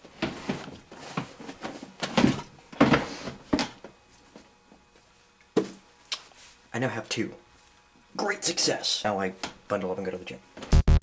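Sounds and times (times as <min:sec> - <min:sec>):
rustling and knocking of items: 0:00.0 - 0:06.6.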